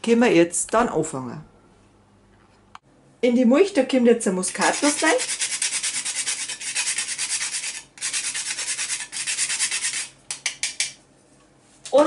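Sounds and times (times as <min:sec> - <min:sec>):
nutmeg scraping on a grater: 0:04.5 - 0:10.2.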